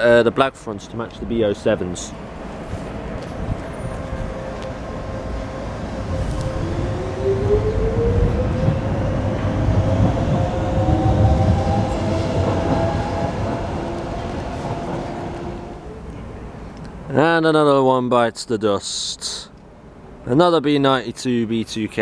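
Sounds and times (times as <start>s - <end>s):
wheel and rail rumble: 0.6s - 17.1s
train traction motors whining: 2.2s - 16.0s.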